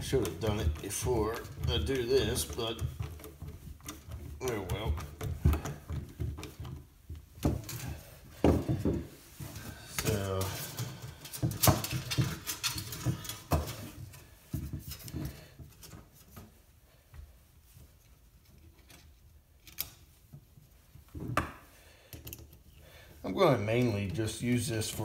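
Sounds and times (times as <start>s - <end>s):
tools handled on workbench: 0.0s - 16.5s.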